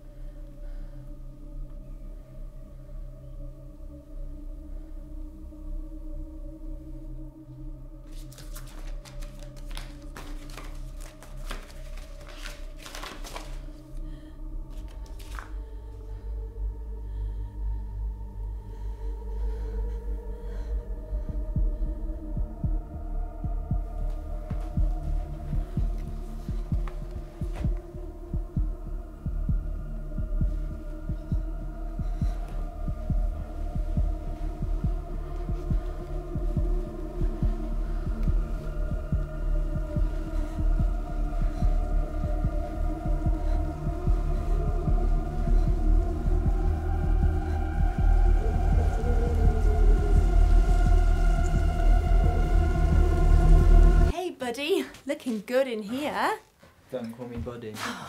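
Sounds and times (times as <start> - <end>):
low music drone: 0.0 - 54.2
journal cover rustling and scraping: 8.1 - 13.6, 14.8 - 15.5
heartbeat-like low pulse: 15.6 - 54.1.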